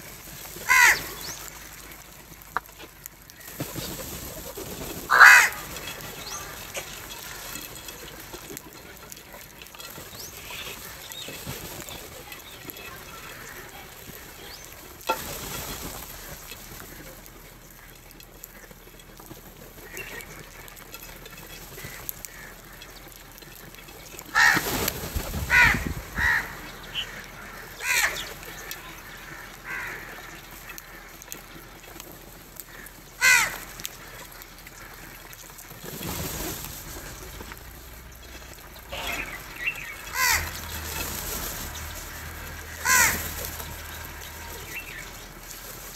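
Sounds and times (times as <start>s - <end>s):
crows cawing: 0.6s - 1.8s, 5.0s - 7.7s, 21.7s - 23.1s, 24.3s - 24.8s, 25.4s - 31.6s, 32.6s - 35.4s, 38.9s - 45.2s.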